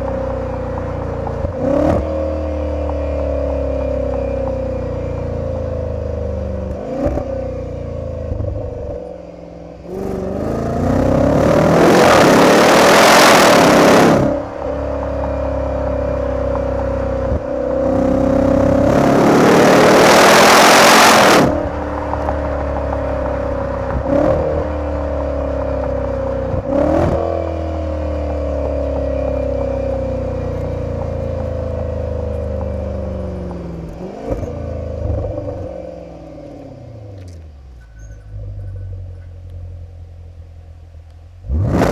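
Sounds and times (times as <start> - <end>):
car engine accelerating: 0.0 - 41.9
exhaust cracks: 20.6 - 39.7.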